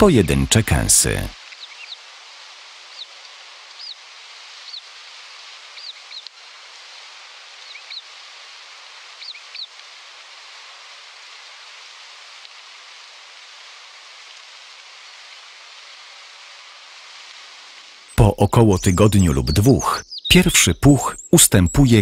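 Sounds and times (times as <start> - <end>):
steady hiss: 0.0 - 22.0
owl nestlings squeaky begging calls: 18.6 - 22.0.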